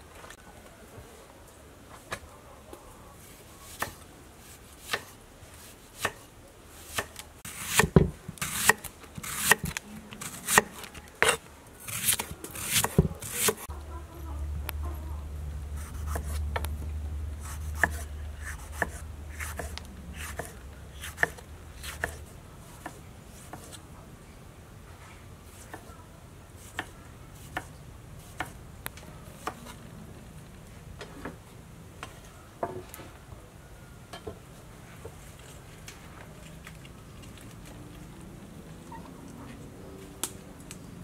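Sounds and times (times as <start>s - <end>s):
knife slicing tomatoes on wood: 3.7s - 13.7s, 15.8s - 16.7s, 17.4s - 23.8s, 26.6s - 28.6s.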